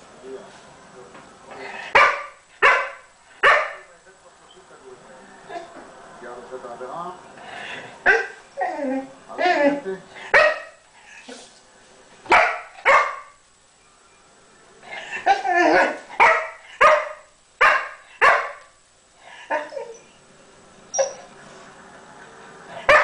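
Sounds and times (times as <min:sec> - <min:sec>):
dog barking: 0:01.9 - 0:03.9, 0:08.0 - 0:08.4, 0:10.3 - 0:10.8, 0:12.3 - 0:13.4, 0:15.3 - 0:18.8, 0:22.8 - 0:23.0.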